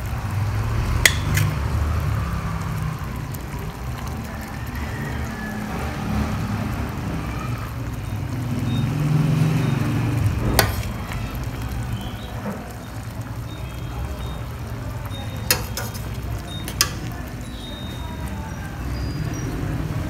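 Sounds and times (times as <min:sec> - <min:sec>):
sauce dribbling onto plate: 0:00.0 - 0:19.9
spoon scooping from metal pot: 0:01.1 - 0:01.6, 0:10.5 - 0:11.1, 0:15.3 - 0:17.9
spoon clinking on metal: 0:15.0 - 0:18.3.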